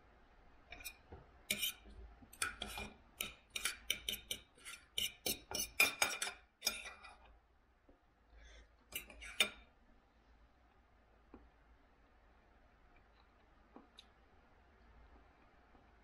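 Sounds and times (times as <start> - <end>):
knife and fork scraping a plate: 0.7 - 7.3, 8.9 - 9.6.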